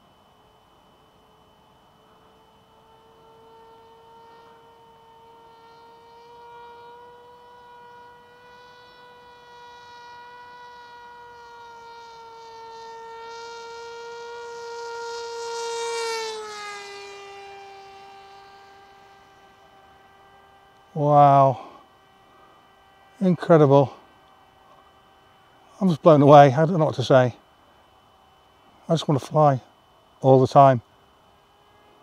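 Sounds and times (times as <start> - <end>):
model plane motor whine: 0.0 - 32.0.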